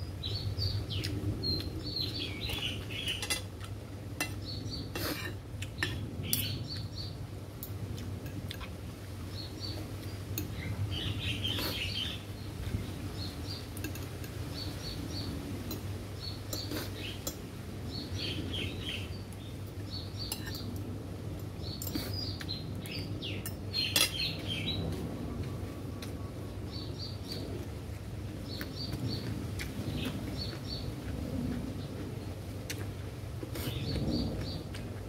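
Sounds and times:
small birds chirping: 0.0s - 35.0s
cutlery clinking on plates: 3.0s - 3.6s, 23.4s - 24.3s.

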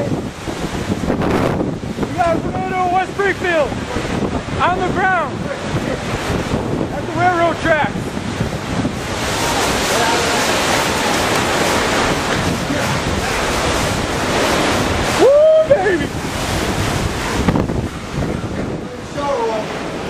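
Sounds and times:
strong wind buffeting microphone: 0.0s - 20.0s
person shouting: 15.2s - 16.1s.

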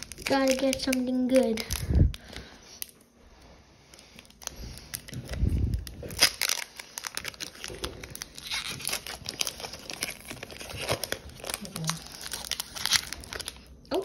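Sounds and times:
foil wrapper tearing and crinkling: 0.0s - 3.0s, 4.2s - 14.0s.

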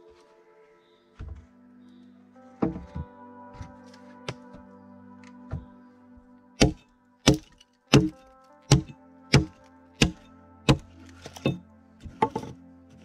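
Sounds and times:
background music: 0.0s - 13.0s
axe chopping a log: 6.6s - 11.6s.

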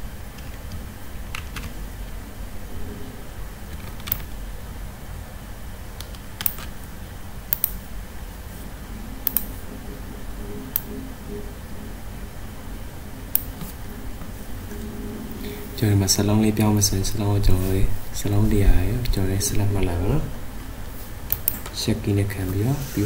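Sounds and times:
keyboard and mouse clicks: 0.4s - 1.8s, 3.7s - 4.3s, 6.0s - 6.8s, 7.5s - 7.8s, 9.2s - 9.6s, 10.6s - 11.1s, 21.3s - 21.8s.

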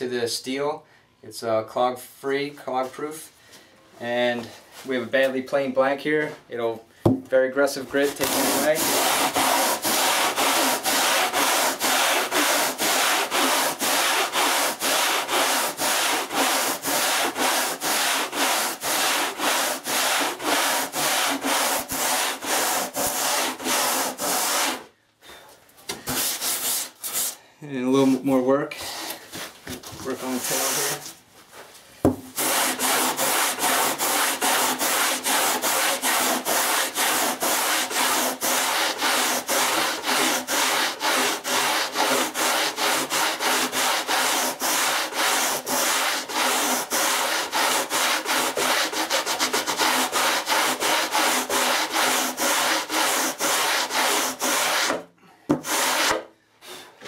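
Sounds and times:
rasp scraping foam: 7.9s - 24.9s, 26.1s - 27.4s, 30.0s - 31.1s, 32.3s - 56.2s.

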